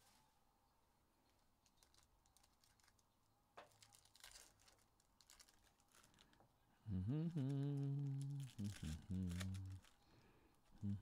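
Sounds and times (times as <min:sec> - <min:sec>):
foil wrappers crinkling: 0:01.6 - 0:06.5, 0:07.3 - 0:10.3
short crackles: 0:07.2 - 0:10.0.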